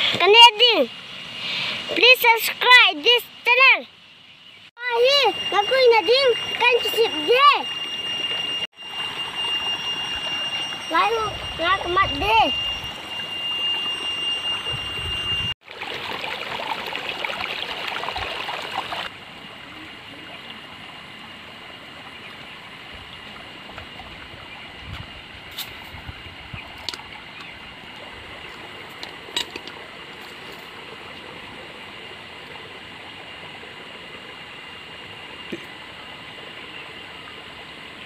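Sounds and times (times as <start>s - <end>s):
thin high tone: 4.8s - 15.6s
running water rushing: 15.6s - 38.0s.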